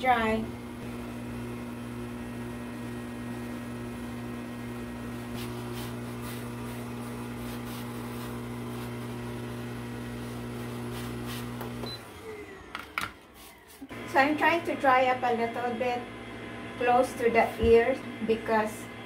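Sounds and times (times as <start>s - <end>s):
pet blow dryer motor hum: 0.0s - 12.9s.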